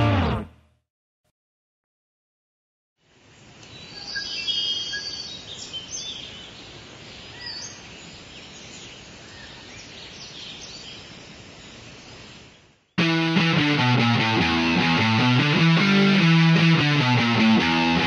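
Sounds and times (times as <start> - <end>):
steady background hiss: 3.0 - 12.9.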